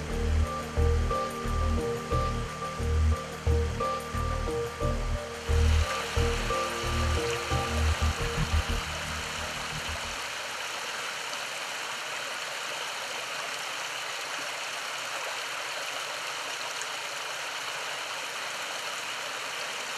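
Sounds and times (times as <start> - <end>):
background music: 0.0 - 10.2
water rushing over weirs: 0.0 - 19.9.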